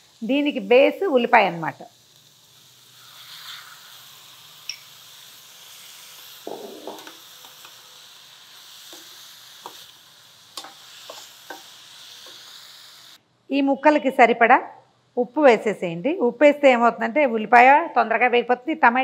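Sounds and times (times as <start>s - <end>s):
food sizzling in oil: 0.0s - 13.2s.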